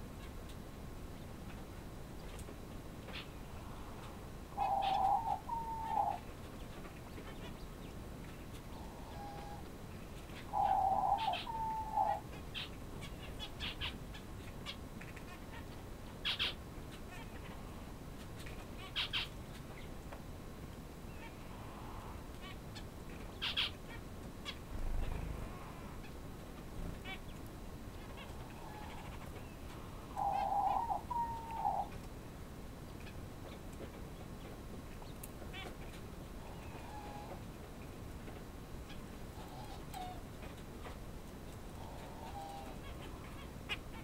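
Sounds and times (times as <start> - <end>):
soft quail peeps: 3.1 - 17.8, 18.4 - 19.9, 21.1 - 26.2, 26.9 - 32.0, 34.4 - 37.4, 38.8 - 40.2, 41.7 - 44.0
quail whistled call: 4.6 - 6.2, 8.8 - 9.6, 10.6 - 12.2, 30.1 - 31.9.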